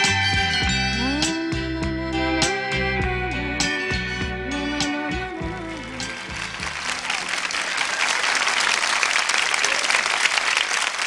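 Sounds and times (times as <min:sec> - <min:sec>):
band's held notes: 0:00.0 - 0:07.0
audience applauding: 0:05.6 - 0:11.0.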